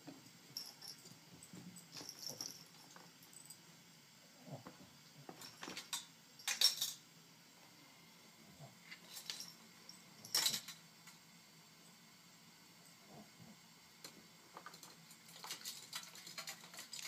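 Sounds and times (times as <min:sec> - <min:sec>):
collar jingling against metal bowl: 0:00.6 - 0:01.1, 0:01.8 - 0:03.6.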